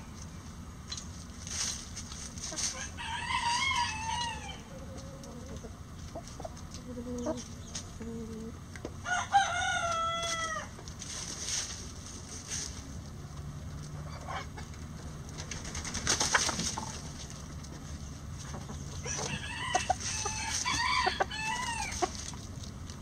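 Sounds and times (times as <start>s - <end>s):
hens clucking softly: 2.1s - 8.9s, 13.8s - 23.0s
roosters crowing: 2.4s - 10.9s, 16.4s - 22.6s.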